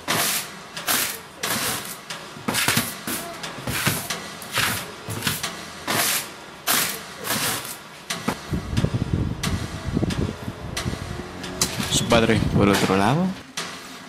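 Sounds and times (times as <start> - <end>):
broom sweeping wooden floor: 0.0 - 8.4.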